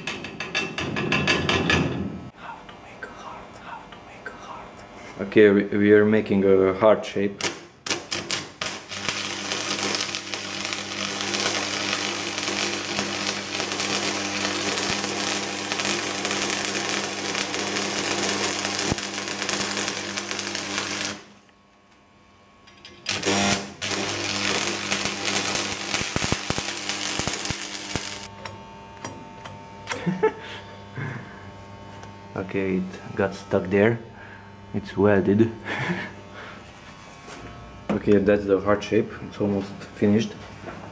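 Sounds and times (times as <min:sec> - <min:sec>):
steady low hum: 0:00.0 - 0:40.8
welding arc crackling: 0:07.4 - 0:33.9.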